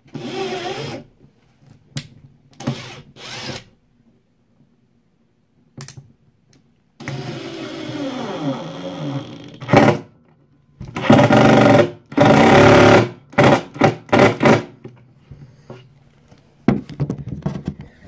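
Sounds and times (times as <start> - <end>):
power drill driving screws: 0.2 - 1.0, 2.6 - 3.7, 7.0 - 10.0.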